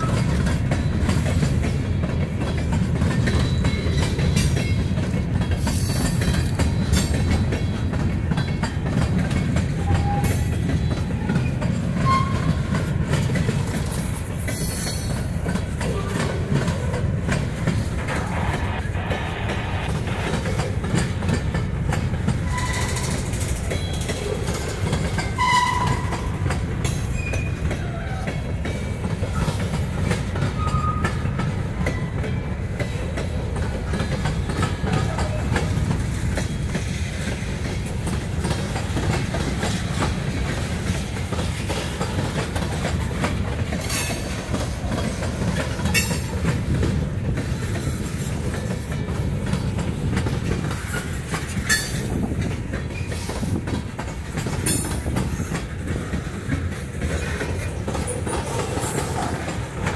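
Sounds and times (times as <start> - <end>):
wheels clacking over rail joints: 0.0 - 18.8, 20.1 - 59.9
freight train rumbling past: 0.0 - 59.9
high wheel squeak: 9.8 - 12.8, 22.4 - 24.2, 27.0 - 28.3.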